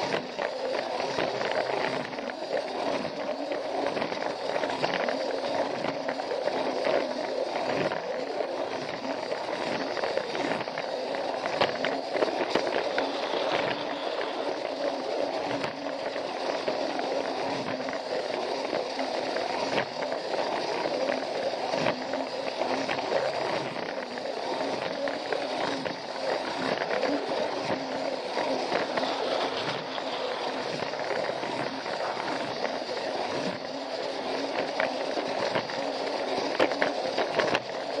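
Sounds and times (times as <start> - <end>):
toy train motor whirring: 0.0 - 38.0
wheels clicking on track: 8.7 - 18.8, 22.6 - 38.0.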